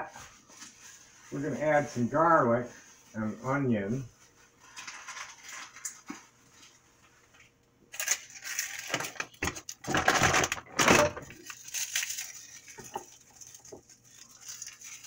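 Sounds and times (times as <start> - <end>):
rustling and crinkling: 0.0 - 15.0.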